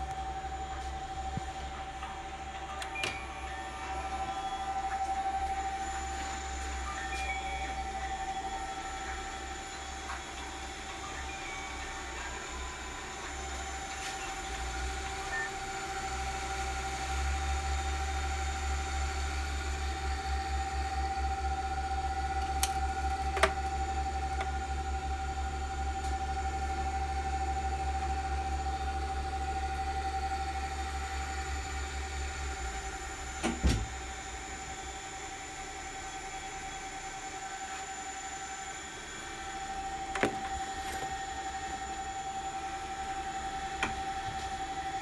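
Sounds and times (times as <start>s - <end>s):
servo motor hum and whine: 0.0s - 45.0s.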